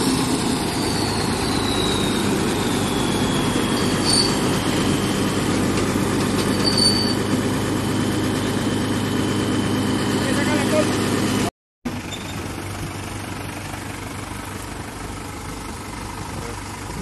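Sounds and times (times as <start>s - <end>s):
thin high whine: 0.0s - 10.8s
diesel engine running: 0.0s - 17.0s
short high squeaks: 0.6s - 7.3s, 12.0s - 12.4s.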